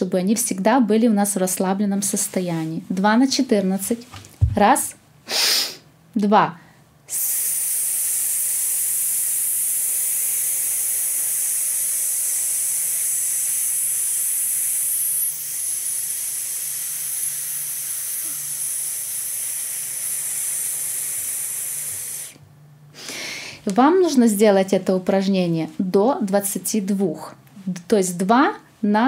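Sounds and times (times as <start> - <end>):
woman inhaling: 5.2 - 5.9, 17.2 - 23.7
woman hissing steadily: 5.3 - 5.8, 7.1 - 22.4.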